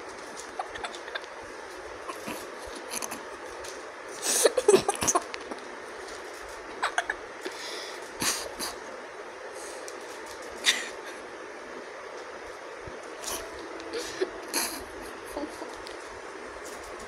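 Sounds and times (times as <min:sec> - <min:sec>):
puppy vocal sounds: 0:02.1 - 0:03.2
scattered clicks: 0:15.6 - 0:17.0.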